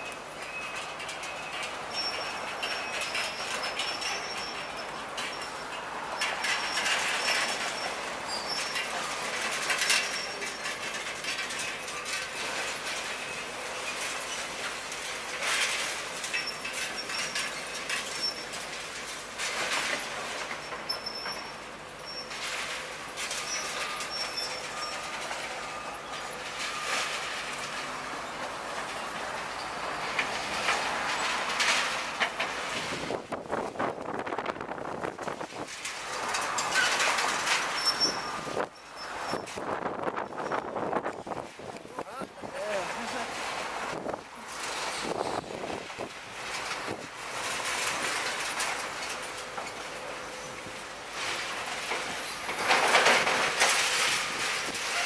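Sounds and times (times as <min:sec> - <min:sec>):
high metal squeals: 0:00.4 - 0:10.8, 0:16.3 - 0:18.6, 0:20.6 - 0:22.7, 0:23.3 - 0:32.9, 0:36.1 - 0:41.0
metal debris crashing: 0:00.4 - 0:55.0
metal debris scraping and clanking: 0:00.4 - 0:55.0
faint high squeal: 0:23.4 - 0:30.1, 0:37.7 - 0:39.6.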